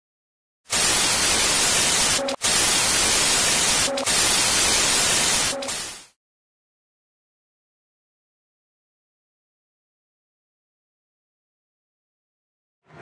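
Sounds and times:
short glitch tone: 0.7s - 6.2s
television static hiss: 0.8s - 6.0s.

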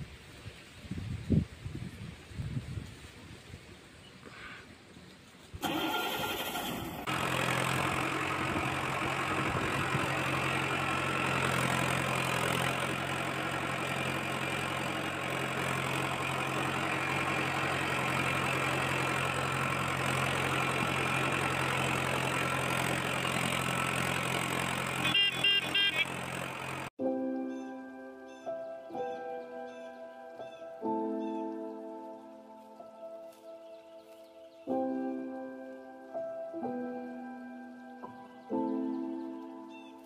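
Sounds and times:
tractor engine cranking and running: 5.6s - 26.9s.

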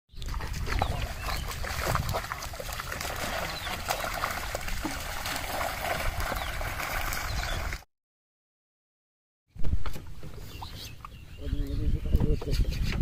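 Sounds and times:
water streaming and dripping: 0.1s - 7.8s
fish flapping and splashing: 0.3s - 7.8s.

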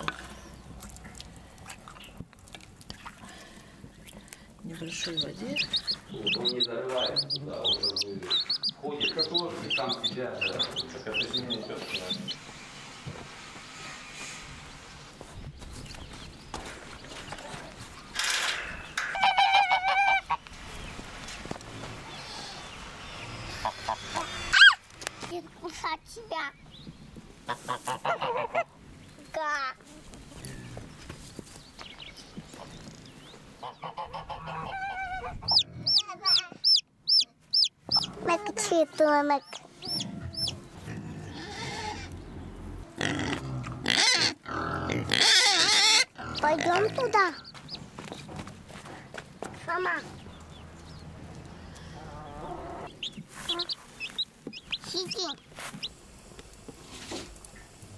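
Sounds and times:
geese honking: 5.0s - 12.2s, 19.0s - 20.4s, 27.5s - 28.7s, 33.6s - 36.0s, 51.7s - 54.2s
young pigs squealing: 5.0s - 12.4s, 19.1s - 20.4s, 22.1s - 24.8s, 33.6s - 38.2s, 39.8s - 47.5s, 51.7s - 54.2s
short hissing noise: 12.3s - 15.2s.

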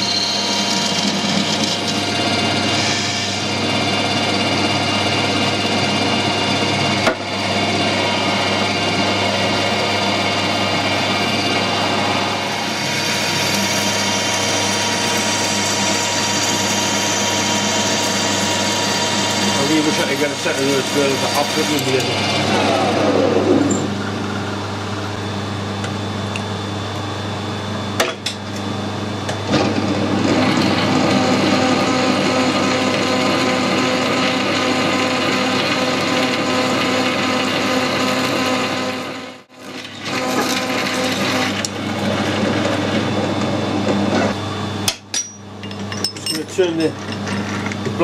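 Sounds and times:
metal lathe humming: 0.0s - 26.4s, 27.5s - 48.0s
drill boring into metal bar: 9.7s - 23.9s.

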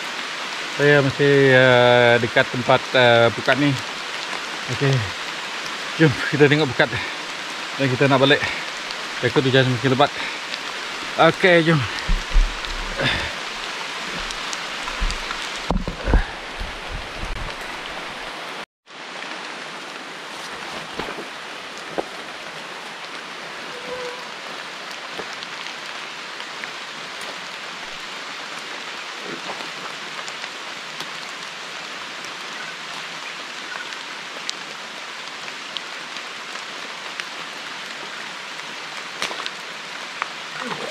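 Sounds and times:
heavy rain falling: 0.0s - 40.9s
low thumps: 11.8s - 18.0s.

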